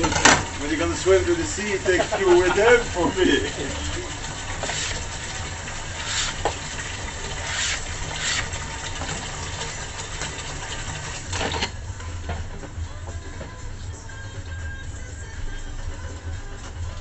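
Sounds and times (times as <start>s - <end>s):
cloth wiping cutting board: 4.6s - 5.0s, 5.9s - 6.6s, 7.4s - 8.6s.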